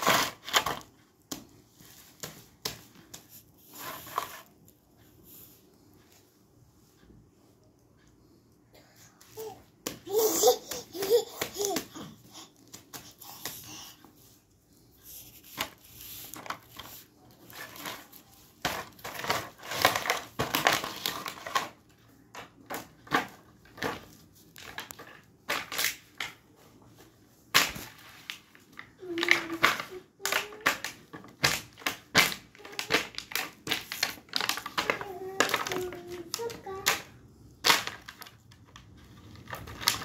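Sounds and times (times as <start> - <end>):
baby babbling: 9.3 - 14.0
plastic toy crinkling: 27.6 - 37.0, 37.6 - 40.0.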